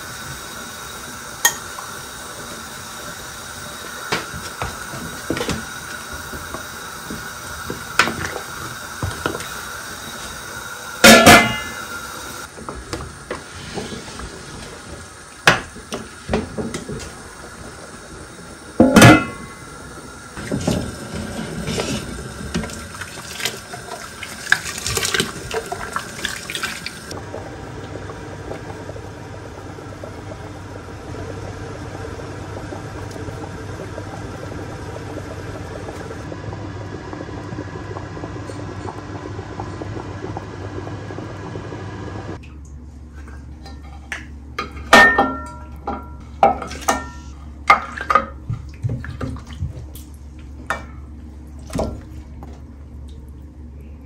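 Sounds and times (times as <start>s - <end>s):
broth simmering in a pot: 0.0s - 54.0s
metal pot and utensils clinking: 43.7s - 48.3s.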